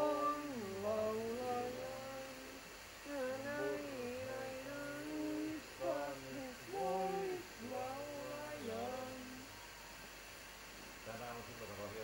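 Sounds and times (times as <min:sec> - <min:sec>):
person humming: 0:00.0 - 0:09.5.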